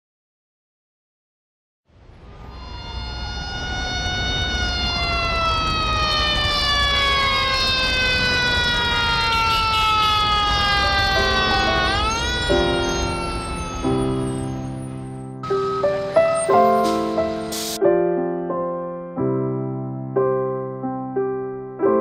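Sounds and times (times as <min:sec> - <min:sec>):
mechanical siren winding down: 0:02.2 - 0:15.7.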